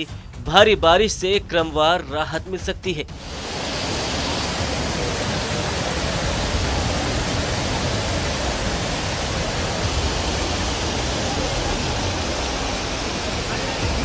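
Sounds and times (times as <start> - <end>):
flood water rushing: 3.1 - 14.0
heavy rain: 3.1 - 14.0.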